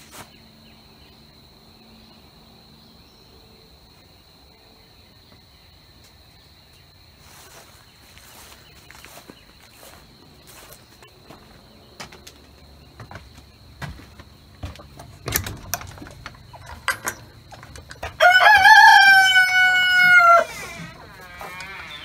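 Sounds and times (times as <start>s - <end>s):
light clicks and knocks: 13.0s - 18.6s
rooster crowing: 17.9s - 22.0s.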